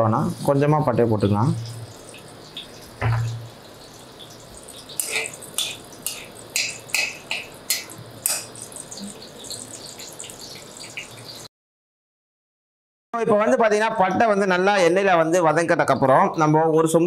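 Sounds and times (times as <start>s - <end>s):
sticks sizzling in hot oil: 0.2s - 11.5s
oil crackles and pops: 1.6s - 11.5s.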